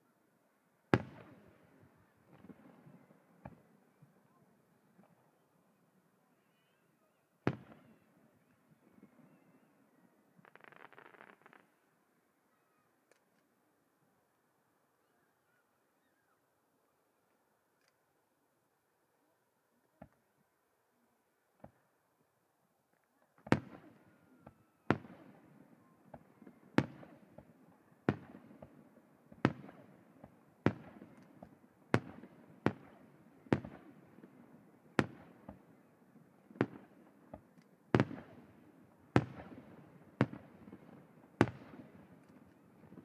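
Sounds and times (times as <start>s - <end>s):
firework shells bursting: 10.4s - 11.7s.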